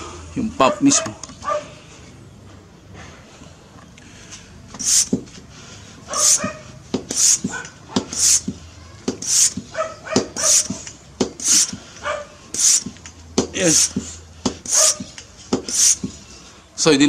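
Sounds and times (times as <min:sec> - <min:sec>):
hand pump air hissing: 0:04.7 - 0:16.4.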